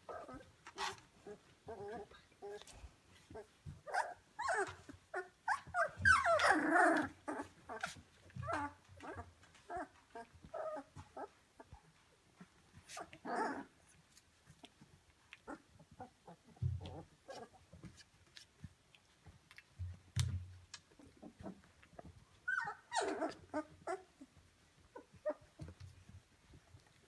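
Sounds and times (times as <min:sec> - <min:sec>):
puppy crying: 0:00.0 - 0:02.6, 0:03.3 - 0:11.7, 0:12.9 - 0:13.7, 0:22.4 - 0:25.7
puppies whimpering and grunting: 0:00.0 - 0:27.0.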